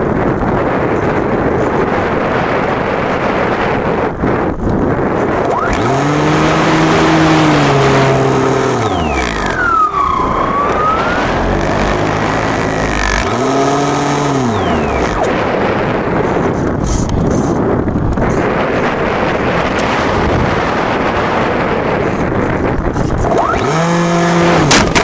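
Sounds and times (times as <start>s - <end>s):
model airplane motor and propeller: 0.0s - 25.0s
wind rushing over microphone: 0.0s - 25.0s
high whine: 5.1s - 16.8s.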